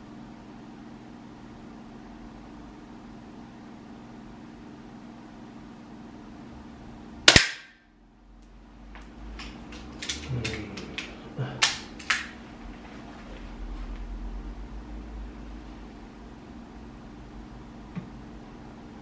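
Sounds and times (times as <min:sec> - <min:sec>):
steady low hum: 0:00.0 - 0:19.0
airsoft pistol shot: 0:07.3 - 0:07.8
clicks and knocks of handling: 0:09.0 - 0:12.4.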